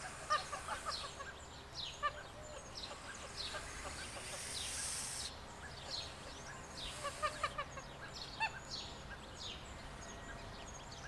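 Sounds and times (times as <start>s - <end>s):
goslings peeping: 0.0s - 8.6s
small birds chirping: 0.0s - 11.0s.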